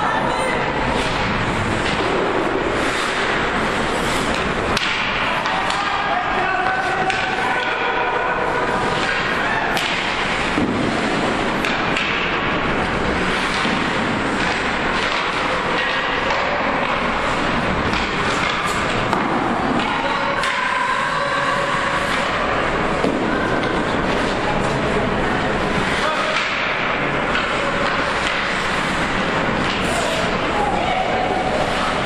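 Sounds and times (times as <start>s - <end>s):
skating and rink noise: 0.0s - 32.0s
hockey sticks and puck clacking: 0.7s - 32.0s
raised voices: 19.7s - 24.0s, 29.7s - 32.0s.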